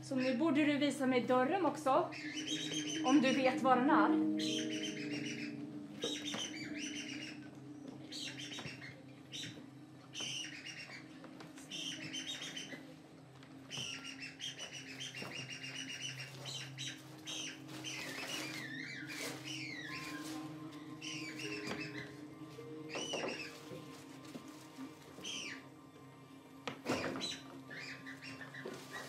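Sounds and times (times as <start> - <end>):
low music drone: 0.0 - 29.0
bird chirps and trills: 0.1 - 12.9, 13.7 - 24.0, 24.6 - 25.8, 26.9 - 29.0.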